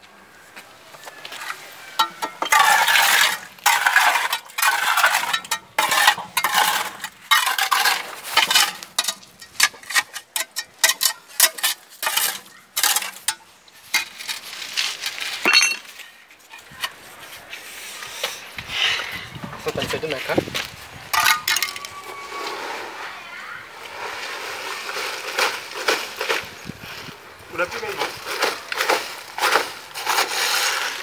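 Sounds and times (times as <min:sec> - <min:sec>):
scraping against concrete wall: 0:01.3 - 0:18.7, 0:28.0 - 0:31.0.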